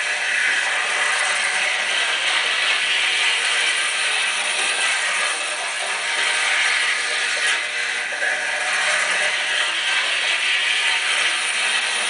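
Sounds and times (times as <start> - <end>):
model train whirring and clattering: 0.0 - 12.0.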